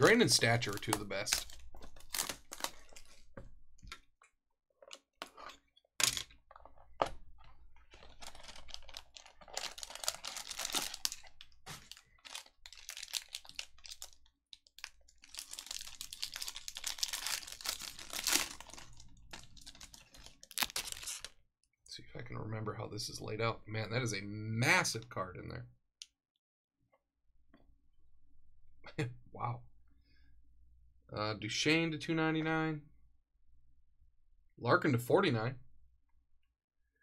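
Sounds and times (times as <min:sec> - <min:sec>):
packaging torn and crinkled: 0:00.0 - 0:03.3, 0:07.9 - 0:21.4.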